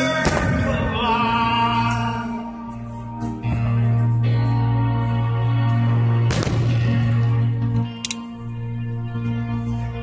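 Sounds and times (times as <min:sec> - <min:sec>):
music: 0:00.0 - 0:10.0
firework bang: 0:06.3 - 0:06.8.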